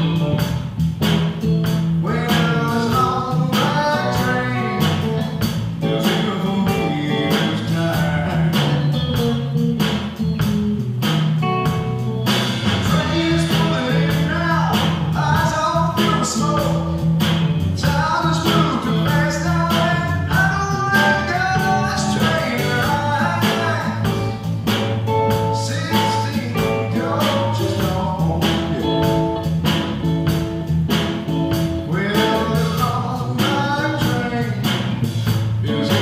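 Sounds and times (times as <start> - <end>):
bass guitar: 0.0 - 36.0
drum kit beat: 0.0 - 36.0
electric guitar: 0.0 - 36.0
person singing: 2.0 - 9.4, 12.8 - 17.0, 17.7 - 24.5, 25.3 - 29.4, 31.8 - 36.0.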